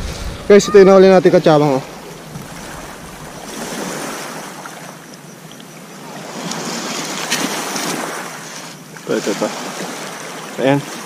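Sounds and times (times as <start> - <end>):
wind on microphone: 0.0 - 4.2
waves washing onto pebbles: 0.0 - 4.8, 6.1 - 11.0.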